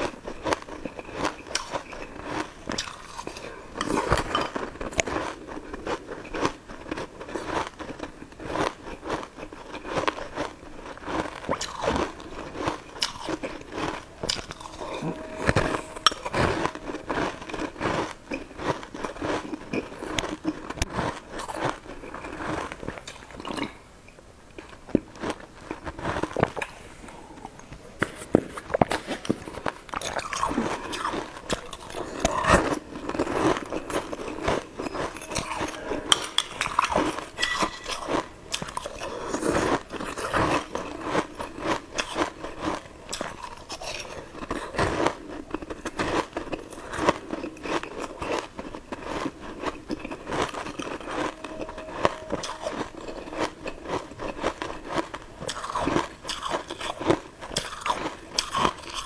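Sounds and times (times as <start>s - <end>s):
ice balls crunching when bitten: 0.0s - 15.4s, 28.8s - 59.0s.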